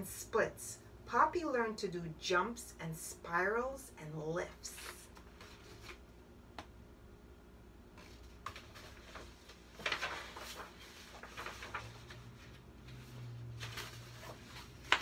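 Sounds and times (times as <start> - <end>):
book pages rustling: 4.5 - 6.1, 7.9 - 15.0.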